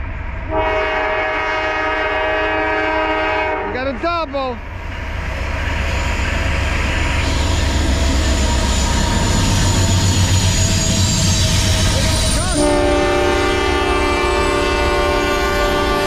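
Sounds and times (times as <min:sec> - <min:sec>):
diesel locomotive engine rumble: 0:00.0 - 0:16.0
train wheels on rails: 0:00.0 - 0:16.0
locomotive horn: 0:00.5 - 0:03.9, 0:11.8 - 0:16.0.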